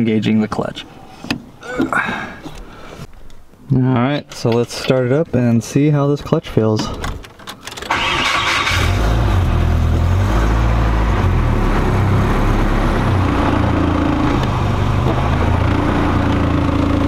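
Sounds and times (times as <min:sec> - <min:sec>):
car engine starting and idling: 0:07.6 - 0:17.0.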